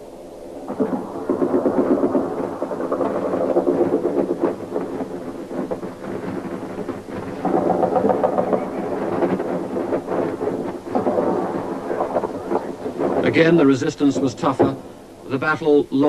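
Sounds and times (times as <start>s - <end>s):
distant gunfire and shell bursts: 0.8s - 15.1s.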